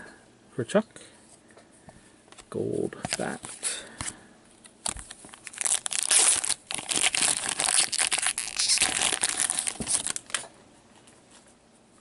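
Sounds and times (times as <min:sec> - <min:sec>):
foil wrapper crinkling: 0:04.8 - 0:10.4.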